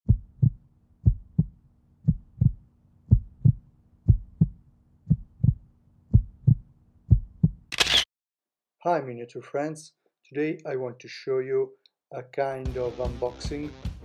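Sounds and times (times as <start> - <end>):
heartbeat thumps: 0.1 - 7.7.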